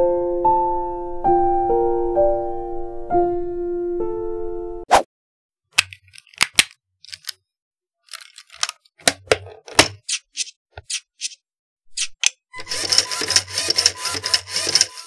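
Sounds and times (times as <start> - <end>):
plastic parts clicking together: 5.8 - 7.4, 8.0 - 10.2.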